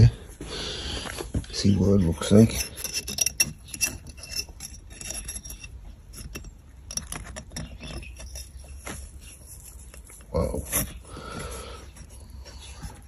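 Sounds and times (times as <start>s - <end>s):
metallic clicks and scrapes: 1.8s - 11.1s.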